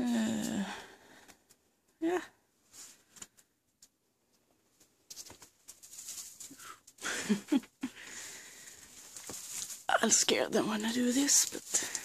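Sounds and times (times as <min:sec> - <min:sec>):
rustling and crunching in straw: 0:05.1 - 0:06.8, 0:08.7 - 0:12.0.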